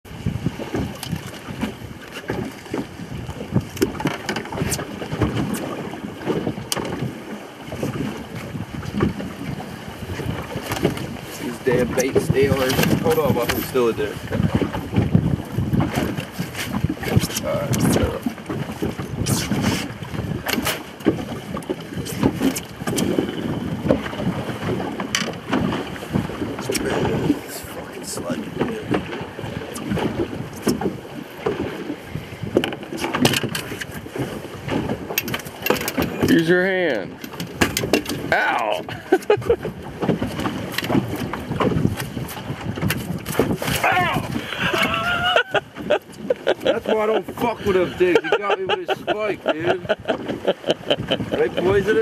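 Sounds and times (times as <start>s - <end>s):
wind buffeting microphone: 0.1s - 52.0s
fish knocking in a net: 37.2s - 38.3s, 40.0s - 43.9s.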